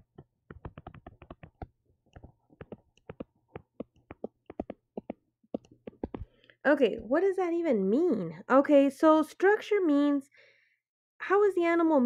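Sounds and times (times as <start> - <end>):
stylus tapping touchscreen: 0.0 - 6.4.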